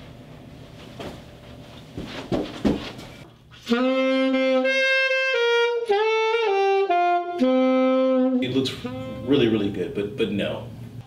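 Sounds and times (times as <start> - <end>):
saxophone slow melody: 3.6 - 9.7.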